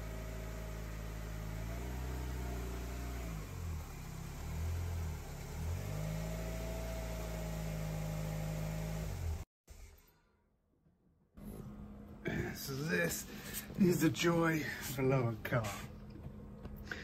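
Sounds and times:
car engine idling: 0:00.0 - 0:09.4.

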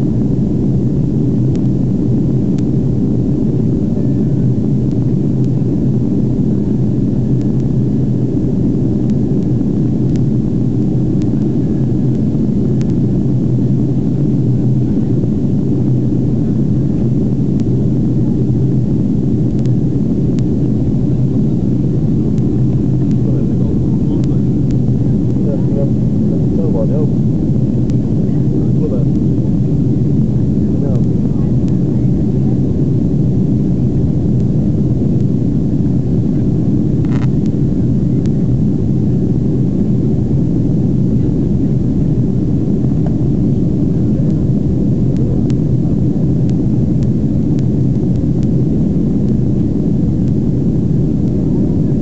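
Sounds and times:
jet engine and airflow rumble: 0:00.0 - 0:52.0.

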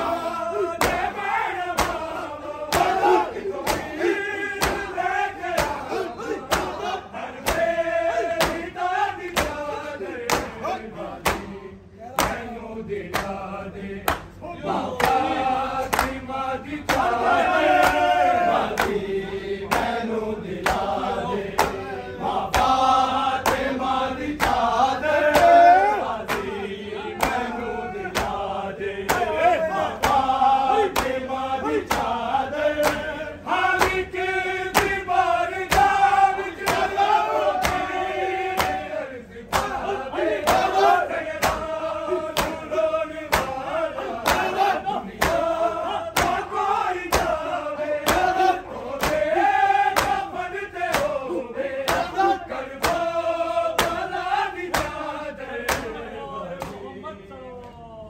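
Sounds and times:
men singing in unison: 0:00.0 - 0:57.9
chest-beating slaps: 0:00.8 - 0:07.8, 0:08.4 - 0:11.6, 0:12.2 - 0:13.4, 0:14.1 - 0:14.4, 0:19.6 - 0:20.0, 0:20.6 - 0:20.9, 0:21.5 - 0:21.9, 0:22.5 - 0:23.8, 0:24.4 - 0:24.7, 0:25.3 - 0:26.6, 0:27.2 - 0:28.4, 0:29.0 - 0:30.4, 0:31.0 - 0:31.2, 0:31.8 - 0:32.2, 0:32.8 - 0:33.2, 0:33.8 - 0:38.9, 0:39.5 - 0:47.4, 0:48.0 - 0:49.3, 0:49.9 - 0:53.1, 0:53.8 - 0:54.1, 0:54.7 - 0:55.0, 0:55.6 - 0:56.0, 0:56.6 - 0:56.8.

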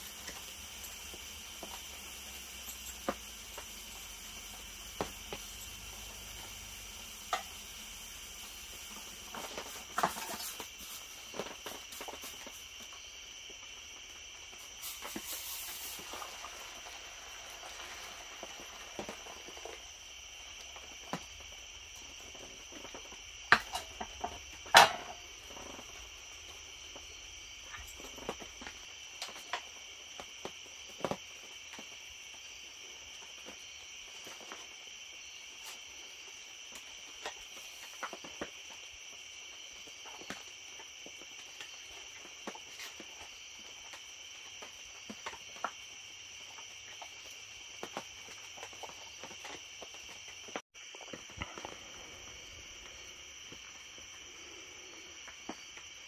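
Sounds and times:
crickets chirring: 0:00.0 - 0:56.0
cup set down on metal table: 0:24.7 - 0:25.2.

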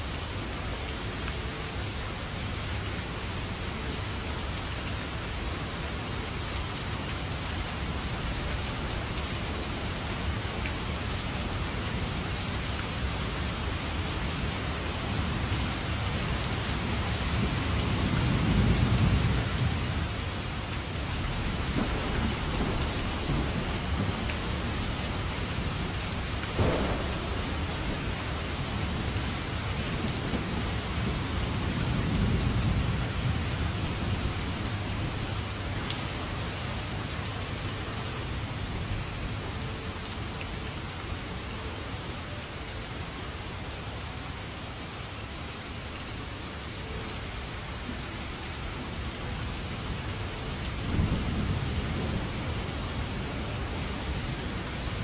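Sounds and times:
heavy rain on pavement: 0:00.0 - 0:55.0
low thunder rumbling: 0:21.3 - 0:35.2, 0:50.8 - 0:53.3
sharp thunder crack: 0:26.6 - 0:28.4.

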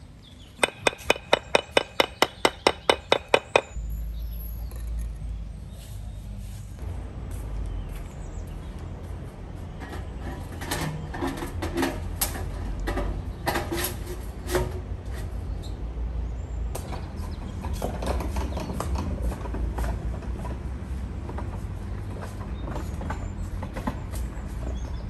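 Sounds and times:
metal pipe clanks and scrapes: 0:09.8 - 0:15.3.

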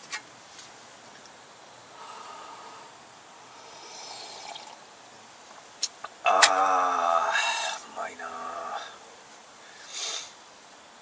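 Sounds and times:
faint sipping: 0:03.6 - 0:04.8.

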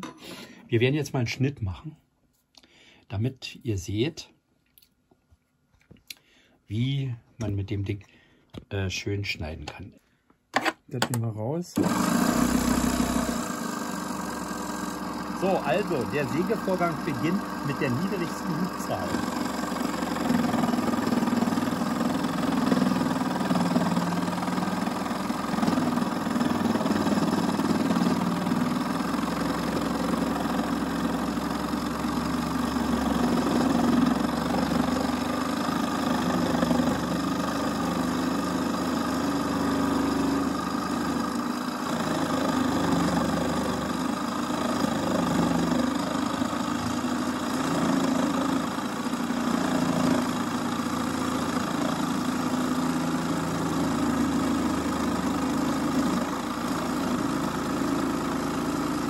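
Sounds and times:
scroll saw cutting wood: 0:11.8 - 0:59.0.

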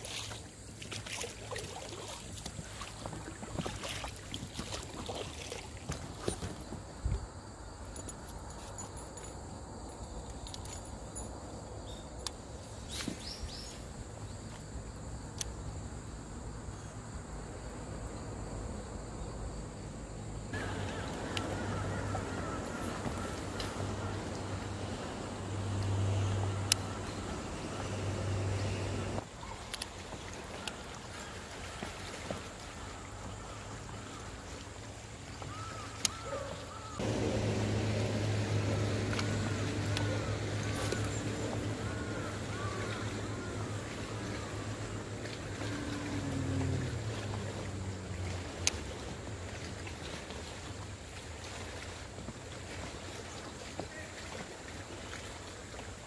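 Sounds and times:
wind and water noise: 0:00.0 - 0:56.0
insects trilling: 0:32.6 - 0:49.2.

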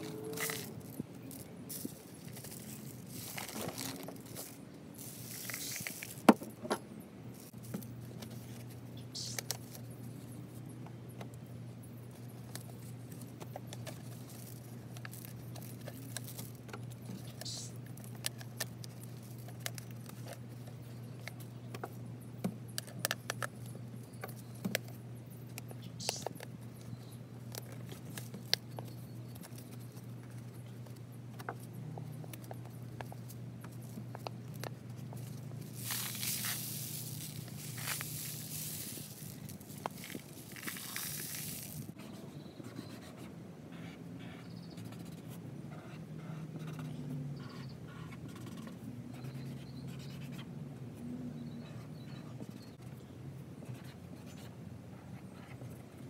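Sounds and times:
paper clicks and rustles: 0:00.0 - 0:06.4, 0:12.1 - 0:21.9, 0:32.3 - 0:42.0
marker squeaking on paper: 0:09.2 - 0:09.6, 0:17.1 - 0:17.8, 0:26.0 - 0:26.4, 0:35.8 - 0:50.5, 0:53.6 - 0:54.5
tape tearing scrape: 0:35.7 - 0:41.9.

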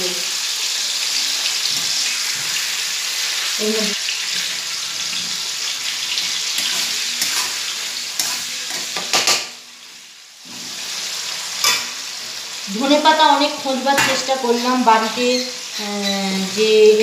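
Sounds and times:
food sizzling in hot oil: 0:00.0 - 0:17.0
metal spatula scraping a wok: 0:04.2 - 0:09.4, 0:10.4 - 0:12.2, 0:13.9 - 0:17.0.

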